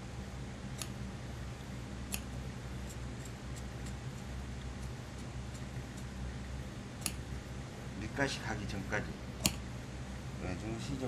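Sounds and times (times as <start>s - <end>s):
steady low hum: 0.0s - 11.0s
shears snipping fabric: 0.7s - 1.0s, 7.0s - 7.2s.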